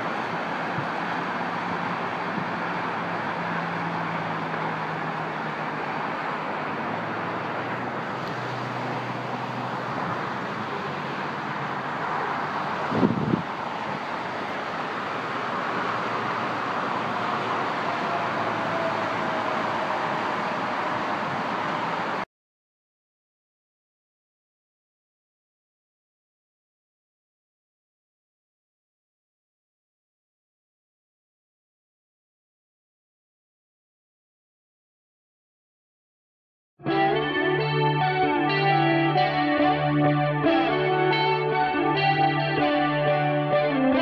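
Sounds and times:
road traffic noise: 0.0 - 22.3, 36.8 - 44.0
vehicles passing: 0.0 - 22.3, 36.8 - 44.0.

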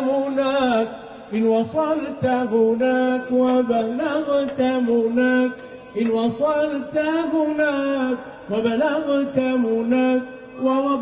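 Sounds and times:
man singing devotional song: 0.0 - 11.0.

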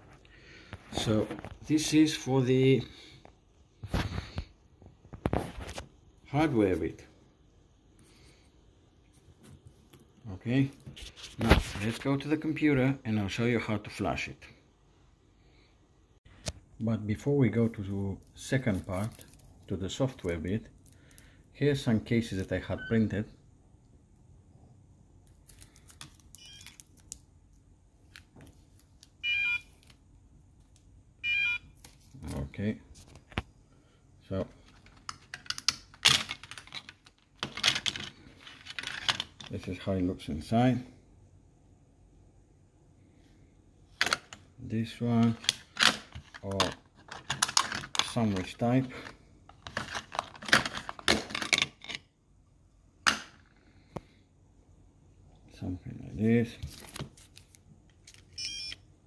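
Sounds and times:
plastic cases clacking: 45.2 - 52.0.

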